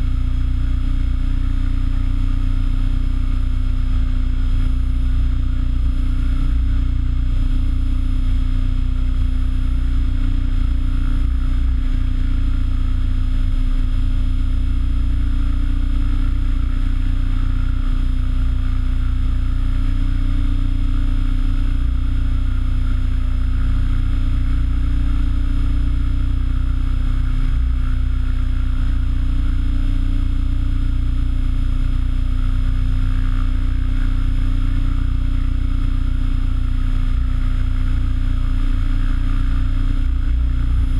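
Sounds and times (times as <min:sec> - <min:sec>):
electric motor whine: 0:00.0 - 0:08.0, 0:30.8 - 0:40.9
rc helicopter rotor beat: 0:00.0 - 0:40.9.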